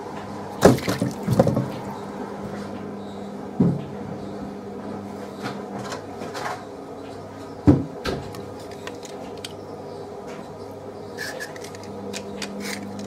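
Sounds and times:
steady low hum: 0.0 - 13.0
light peeling scrapes: 11.2 - 13.0.

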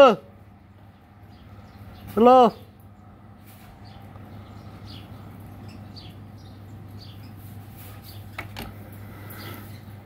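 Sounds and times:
high bird chirps: 3.6 - 8.4.

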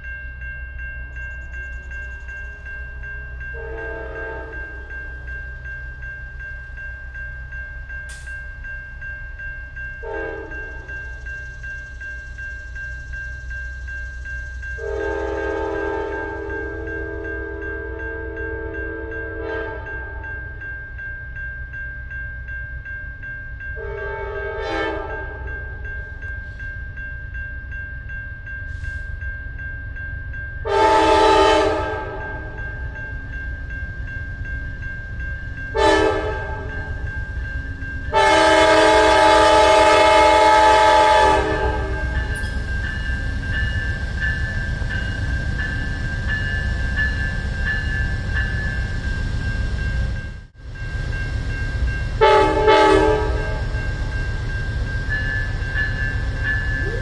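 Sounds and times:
crossing bell ringing: 0.0 - 57.0
train rumbling: 0.0 - 57.0
train air horn blasts: 3.6 - 4.8, 10.0 - 10.8, 14.8 - 20.1, 23.8 - 25.4, 30.7 - 32.6, 35.7 - 36.8, 38.1 - 42.2, 52.2 - 53.6.

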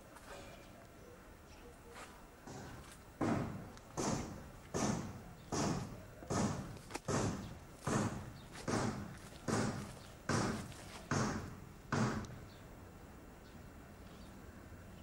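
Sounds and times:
footsteps crunching dry leaves: 7.7 - 11.1.

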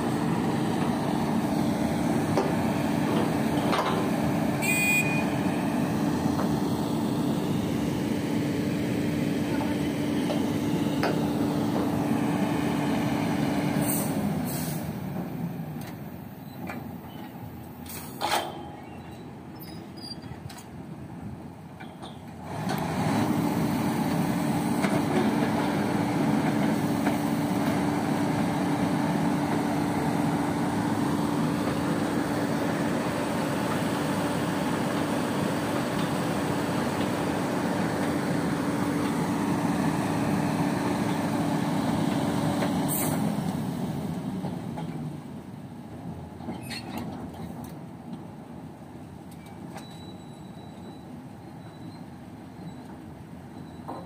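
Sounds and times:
diesel engine running: 0.0 - 16.9, 22.4 - 45.6.

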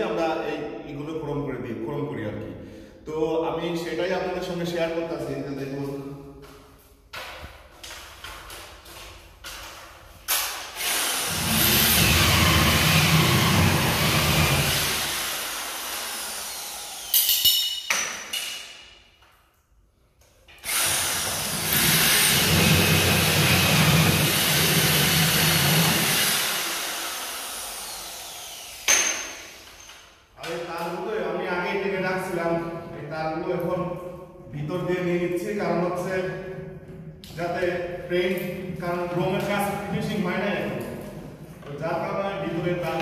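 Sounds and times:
drill cutting gypsum board: 10.7 - 17.4, 20.6 - 29.9.

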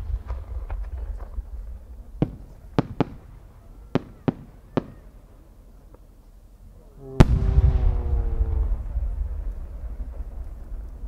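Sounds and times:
firework bursts cracking: 0.0 - 5.4.

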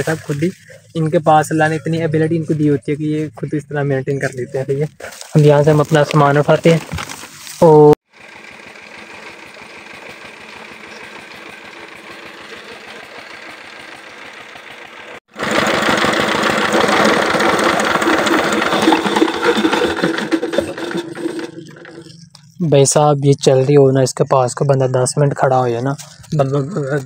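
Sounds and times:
engine knocking steadily: 8.1 - 22.1.

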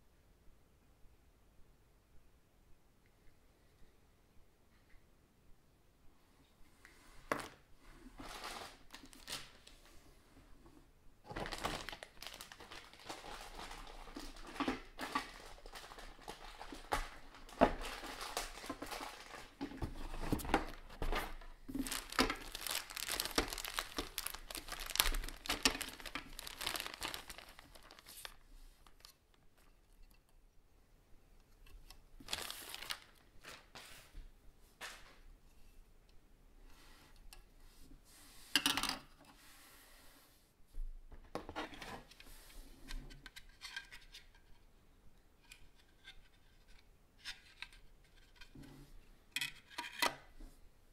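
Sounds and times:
plastic bags crinkling: 8.2 - 9.7, 11.3 - 29.1, 32.2 - 33.7.

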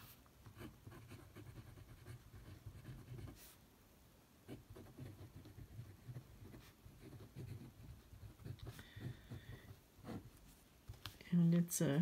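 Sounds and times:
fountain pen scratching on paper: 0.6 - 3.6, 4.5 - 10.4.

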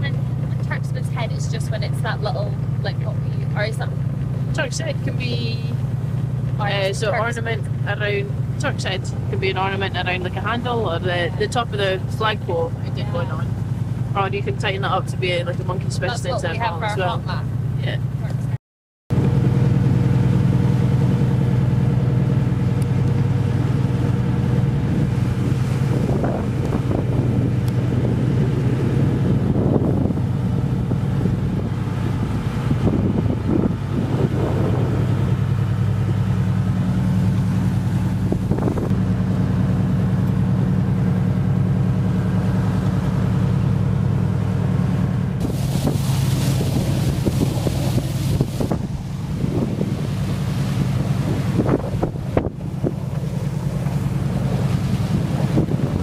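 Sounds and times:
boat engine drone: 0.0 - 56.0
water rushing along hull: 0.0 - 56.0
wind buffeting microphone: 23.3 - 39.3, 45.4 - 56.0.

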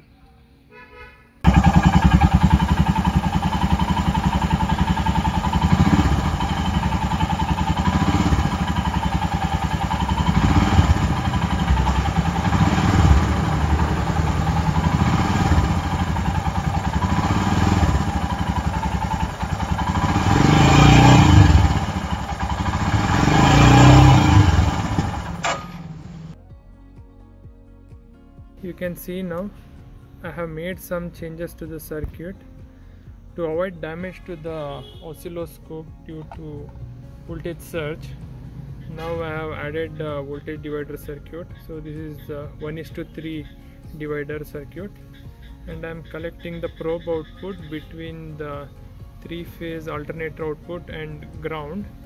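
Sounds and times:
motorcycle engine revving: 1.4 - 26.4, 36.3 - 40.9.

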